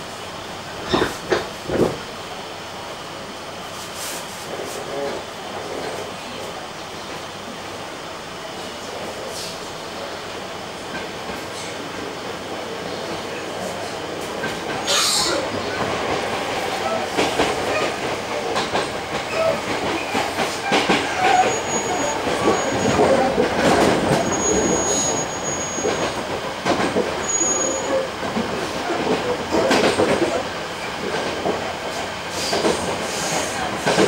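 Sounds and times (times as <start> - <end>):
train wheels rumbling on rail: 0.0 - 34.0
clacks over rail joints: 15.7 - 24.9, 25.6 - 30.4, 31.0 - 34.0
high wheel squeals: 19.3 - 26.2, 27.2 - 28.2.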